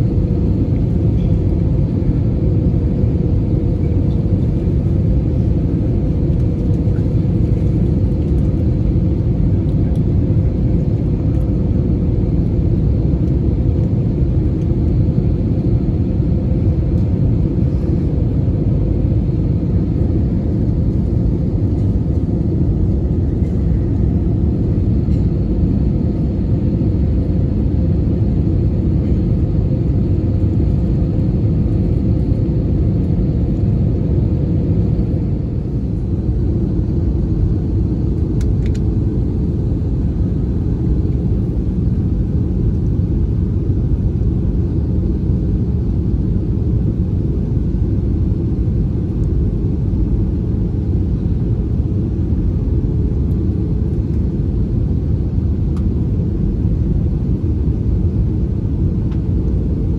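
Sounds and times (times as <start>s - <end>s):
faint constant hum: 0.0s - 59.9s
jet engines and airflow rumble: 0.0s - 59.9s.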